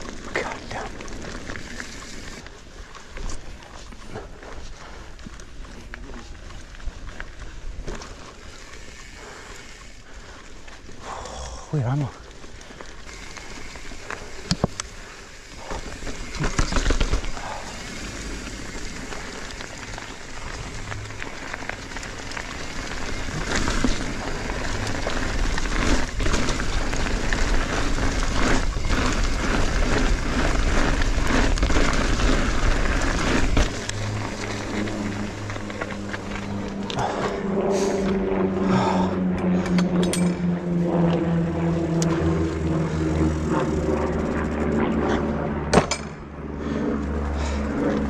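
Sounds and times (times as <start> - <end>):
bike tyres rolling on dirt: 0.0 - 45.5, 46.6 - 48.0
bike rattling over bumps: 0.0 - 48.0
low rumble: 10.1 - 48.0.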